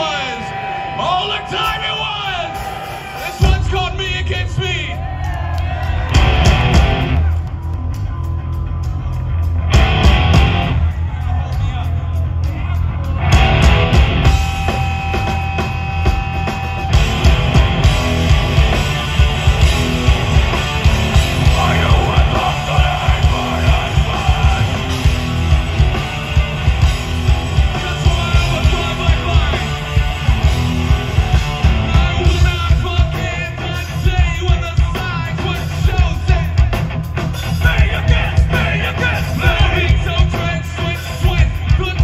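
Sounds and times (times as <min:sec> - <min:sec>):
hard rock band playing: 0:00.0 - 0:42.0
pounding drum kit: 0:01.5 - 0:42.0
person singing: 0:21.2 - 0:26.0, 0:27.5 - 0:30.0.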